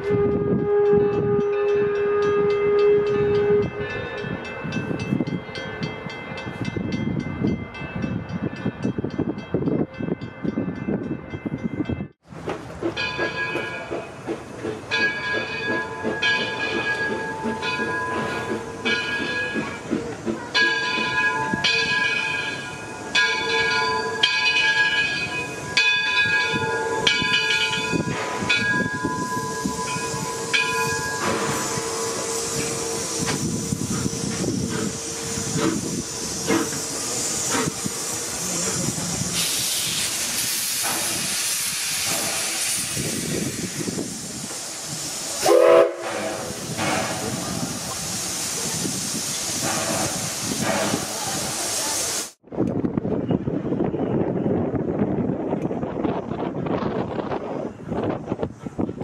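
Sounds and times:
locomotive whistle: 0.0 - 4.1, 28.2 - 40.4, 44.8 - 48.4
steam locomotive chuffing: 12.3 - 52.4
steam hiss: 27.5 - 52.4.

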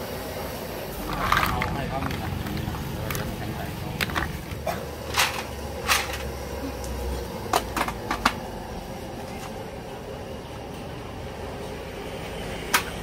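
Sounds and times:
steady low hum: 0.0 - 13.0
mussel shells clacking: 1.0 - 4.7.

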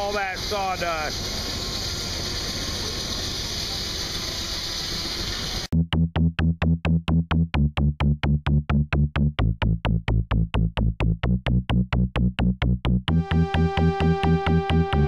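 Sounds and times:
bass line: 5.7 - 15.0
held synthesizer notes: 5.7 - 15.0
fast drum machine beat: 5.8 - 13.5.

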